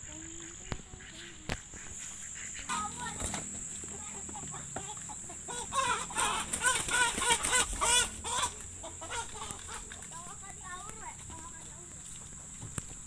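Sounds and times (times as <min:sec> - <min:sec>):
chicken clucking: 0:00.0 - 0:13.0.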